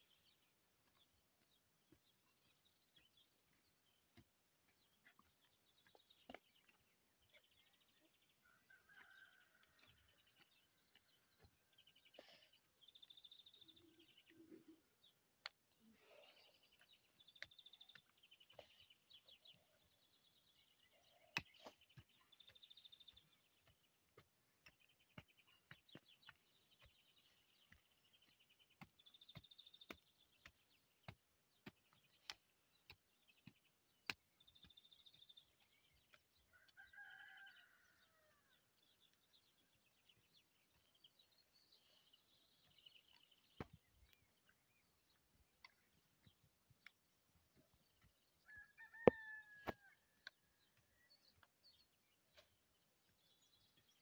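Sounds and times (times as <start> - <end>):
birds chirping: 0.0 - 54.0
rooster crowing: 36.5 - 38.4, 48.4 - 50.0.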